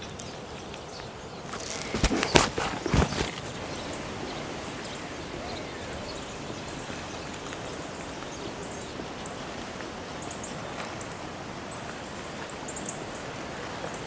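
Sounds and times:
steady outdoor hiss: 0.0s - 14.0s.

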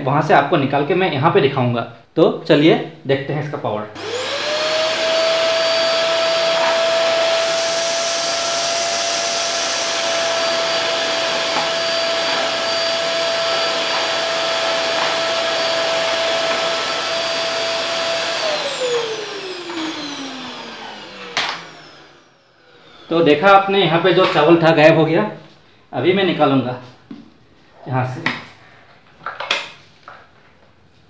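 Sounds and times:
vacuum cleaner running: 4.0s - 24.5s.

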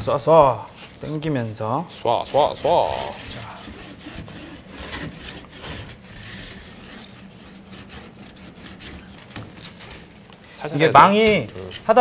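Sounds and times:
spline roller scraping: 2.0s - 10.2s, 10.8s - 12.0s.

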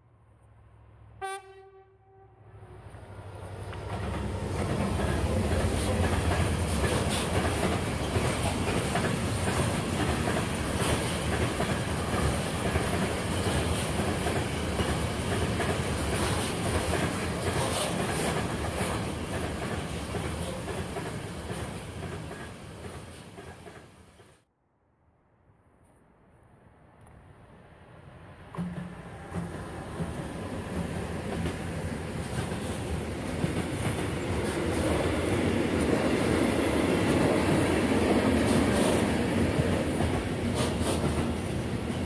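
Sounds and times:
freight train rumbling past: 0.7s - 24.3s, 27.2s - 42.0s
locomotive horn blast: 1.2s - 2.8s
wheels clattering on rails: 3.7s - 23.9s.

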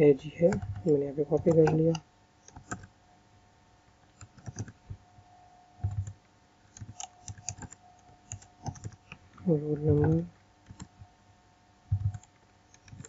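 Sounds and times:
keyboard typing: 0.0s - 2.9s, 4.1s - 5.0s, 5.8s - 11.0s, 11.9s - 13.0s.

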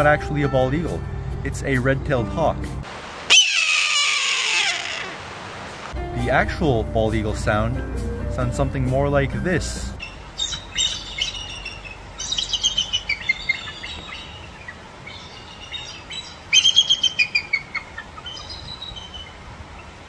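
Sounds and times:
eagle chirping calls: 3.3s - 5.2s, 10.0s - 20.0s.

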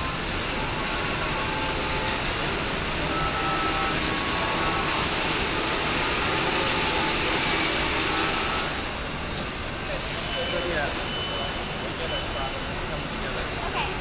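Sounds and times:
machinery running: 0.0s - 9.5s.

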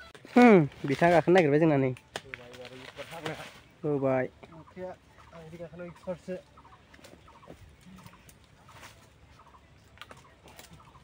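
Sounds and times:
chicken clucking: 4.4s - 11.0s.

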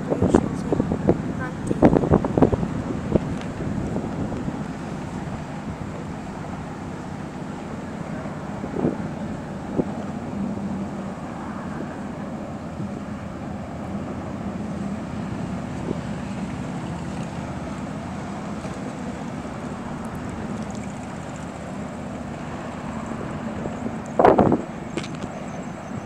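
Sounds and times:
boat engine droning: 0.0s - 26.0s
wind on microphone: 0.0s - 26.0s.

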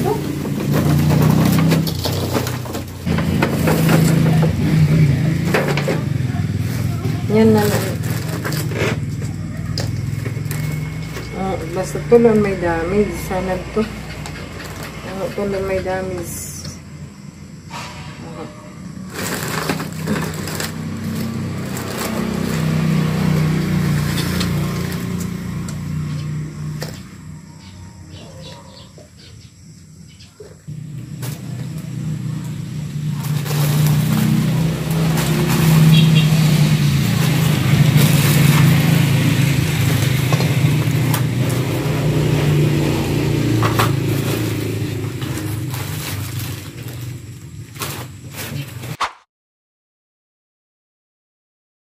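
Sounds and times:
plastic bags crinkling: 0.0s - 4.6s, 6.0s - 11.8s, 19.0s - 25.5s, 30.8s - 49.0s
engine running: 0.0s - 28.1s, 30.7s - 49.0s.

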